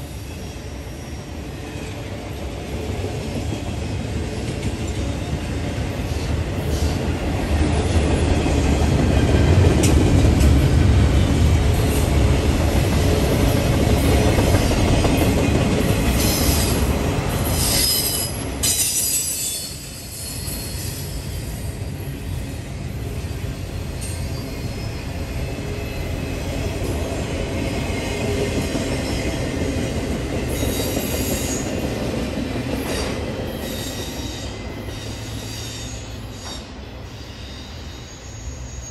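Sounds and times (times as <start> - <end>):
freight cars rumbling on rails: 1.9 - 38.9
high-pitched wheel squeal: 17.6 - 21.1, 33.5 - 38.9.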